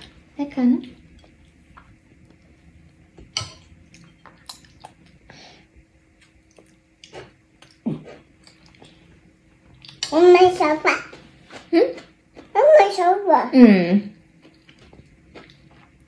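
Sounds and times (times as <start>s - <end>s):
wet chewing: 14.4s - 16.0s.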